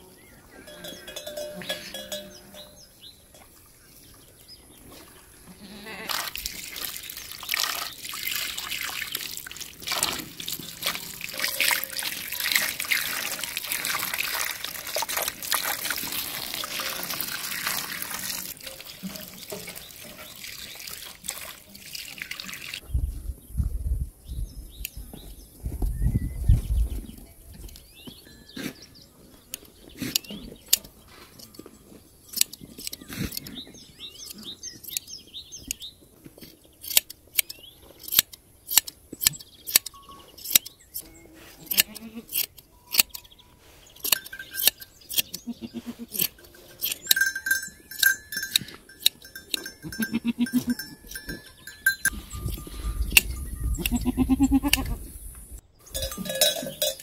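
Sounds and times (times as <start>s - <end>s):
animal bell ringing: 0.6s - 3.6s, 10.6s - 13.1s, 16.5s - 19.7s, 39.9s - 40.4s, 44.0s - 45.6s, 46.2s - 54.8s, 55.9s - 57.0s
goats bleating: 5.4s - 6.3s, 41.7s - 42.4s, 45.4s - 46.3s, 49.8s - 50.9s, 53.8s - 55.0s
shears snipping hair: 36.8s - 43.2s, 44.0s - 47.1s.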